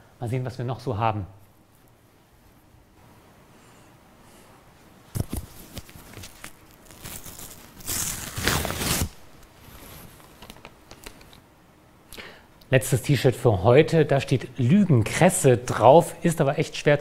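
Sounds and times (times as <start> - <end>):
clothing rustling: 4.8 - 11.2
paper label tearing: 6.2 - 9.2.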